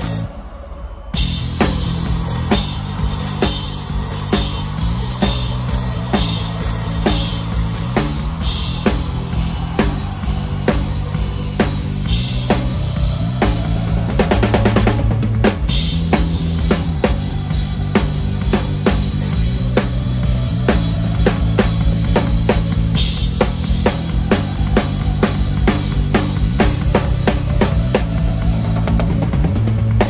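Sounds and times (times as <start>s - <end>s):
bass and keys: 1.2s - 30.0s
drum kit playing pop groove: 1.2s - 30.0s.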